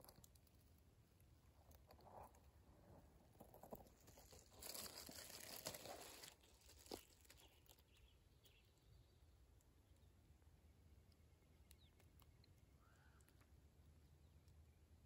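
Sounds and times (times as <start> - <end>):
dry leaves rustling: 3.8 - 7.8.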